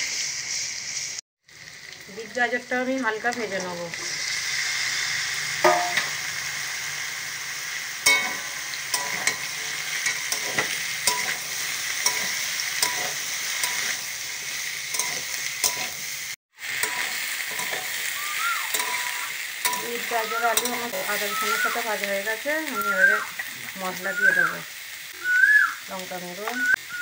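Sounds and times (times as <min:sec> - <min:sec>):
vegetables sizzling in oil: 0:00.0 - 0:27.0
metal spatula scraping pan: 0:08.1 - 0:14.1, 0:14.9 - 0:16.0, 0:16.8 - 0:18.0, 0:18.7 - 0:21.2.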